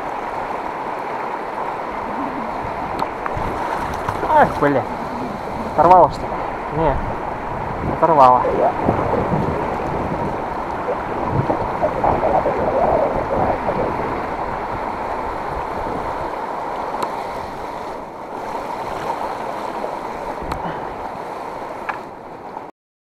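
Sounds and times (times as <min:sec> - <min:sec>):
flowing river water: 0:00.0 - 0:22.7.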